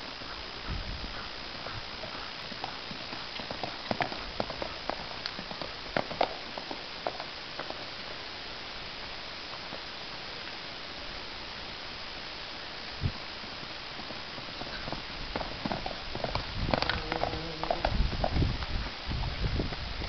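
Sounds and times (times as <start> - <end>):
steady hiss: 0.0 - 20.0
horse hoofbeats on sand: 0.2 - 7.9, 13.6 - 20.0.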